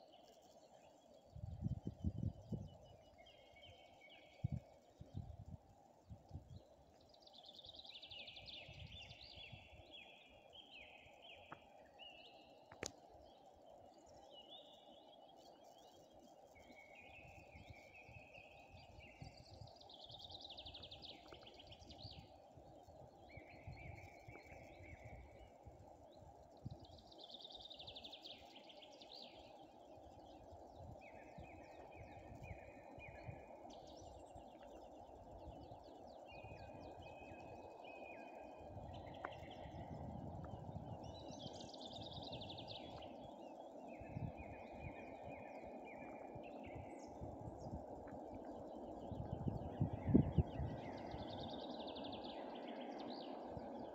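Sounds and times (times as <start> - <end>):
songbirds singing trilled phrases: 13.3 - 53.9.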